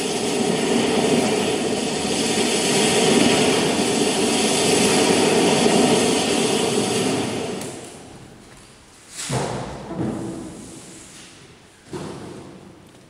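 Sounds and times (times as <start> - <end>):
jet engines roaring: 0.0 - 8.0.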